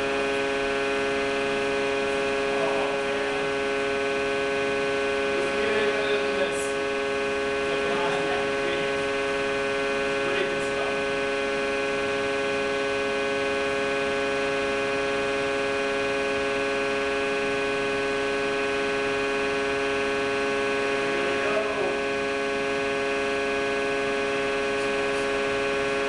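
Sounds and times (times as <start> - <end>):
hydraulic pump whine: 0.0 - 26.0.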